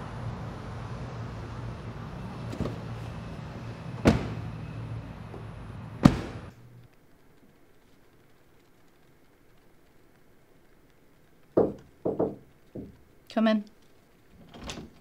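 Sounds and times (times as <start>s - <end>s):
steady low hum: 0.0s - 7.3s
car doors slamming: 2.4s - 3.3s, 3.9s - 6.5s.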